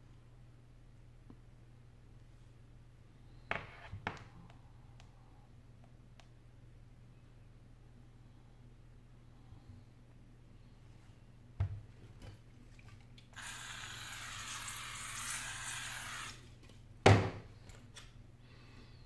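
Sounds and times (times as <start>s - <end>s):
aerosol spray can hissing: 13.4s - 16.4s.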